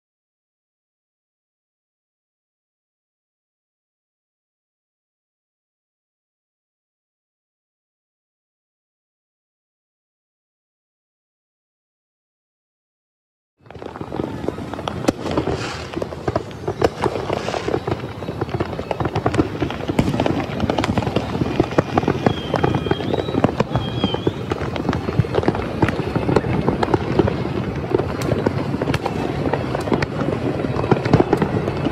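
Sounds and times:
fireworks popping and crackling: 13.6s - 31.9s.

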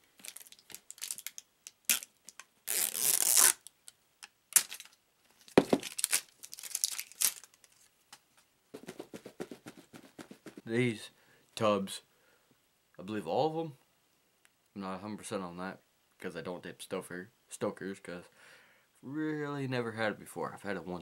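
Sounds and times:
plastic crinkling: 0.0s - 3.6s, 4.6s - 7.9s.

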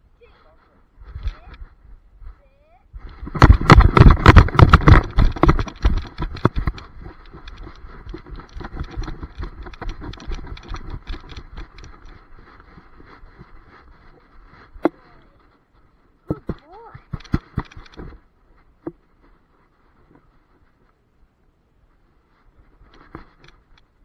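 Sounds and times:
dog paws thudding on grass: 3.0s - 21.0s
camera mount jolting: 3.3s - 12.2s.

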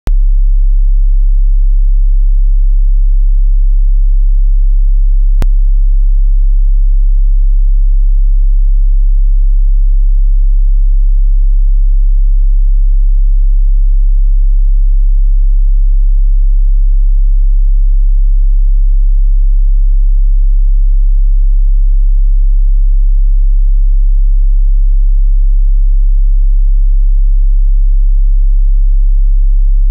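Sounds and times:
deep sine test tone: 0.1s - 29.9s.

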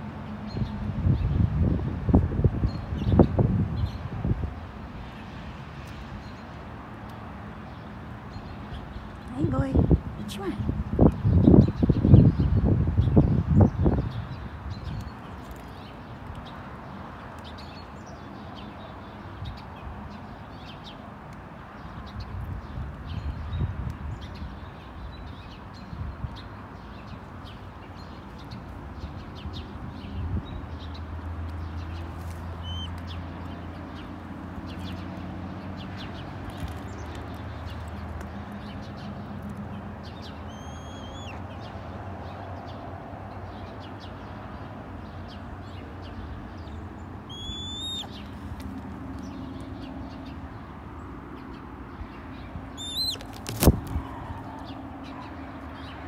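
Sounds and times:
hawk calls: 40.5s - 41.4s, 47.3s - 48.2s, 52.8s - 53.4s.

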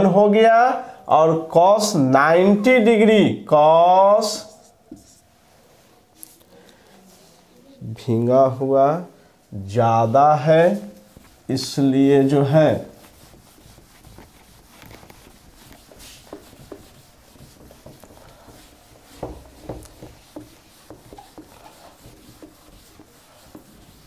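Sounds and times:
duster wiping whiteboard: 9.9s - 24.0s.

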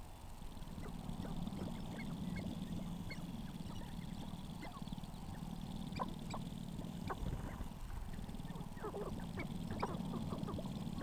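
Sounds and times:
low hum: 0.0s - 11.0s
grouse clucking and chirping: 0.4s - 11.0s.

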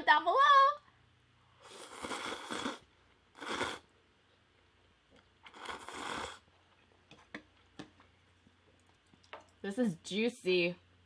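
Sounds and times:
noodles slurping: 1.6s - 3.9s, 5.4s - 6.8s.

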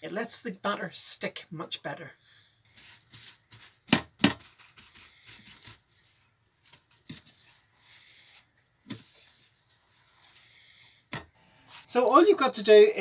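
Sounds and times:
kitchen paper rustling: 2.7s - 10.8s, 11.6s - 12.0s.

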